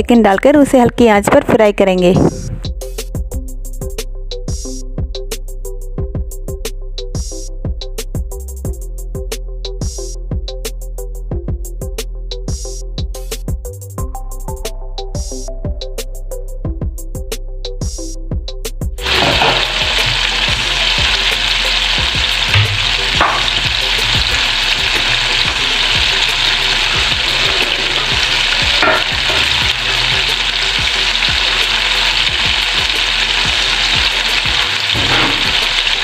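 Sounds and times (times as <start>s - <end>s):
chicken sizzling in hot oil: 19.0s - 36.0s.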